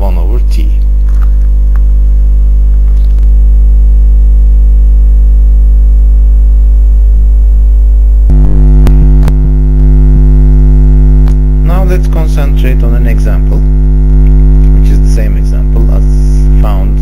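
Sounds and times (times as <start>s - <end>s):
electrical mains hum: 0.0s - 17.0s
clicks: 11.2s - 11.4s.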